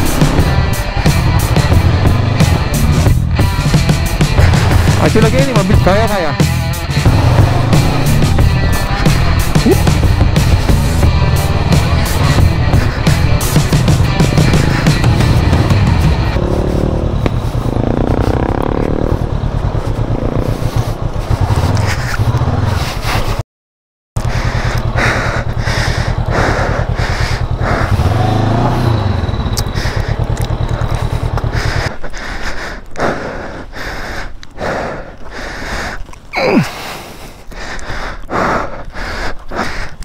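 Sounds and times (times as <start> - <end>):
motorcycle engine rumbling: 0.0 - 23.4, 24.2 - 37.6
person breathing hard: 24.2 - 28.1, 29.6 - 40.0.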